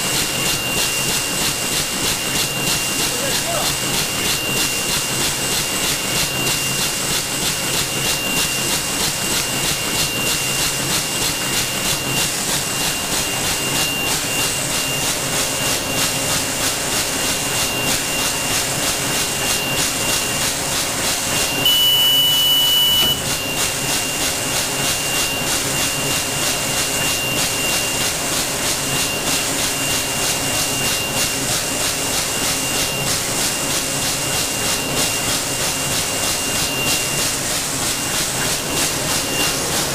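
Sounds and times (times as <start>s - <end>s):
bag-making machine running: 0.0s - 39.9s
loud high tone: 21.6s - 23.3s.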